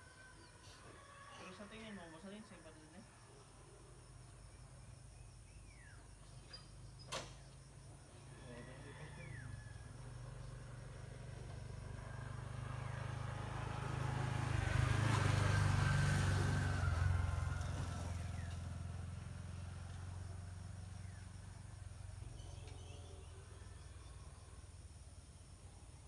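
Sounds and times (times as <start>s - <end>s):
vehicle passing by: 8.2s - 22.5s.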